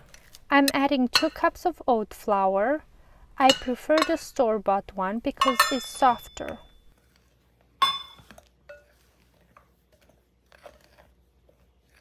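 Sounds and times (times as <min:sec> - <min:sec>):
fork scraping through batter: 0:08.8 - 0:12.0.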